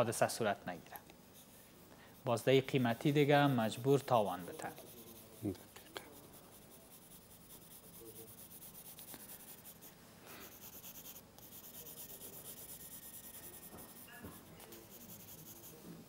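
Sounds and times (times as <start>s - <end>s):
pencil scratching on paper: 2.2s - 15.8s.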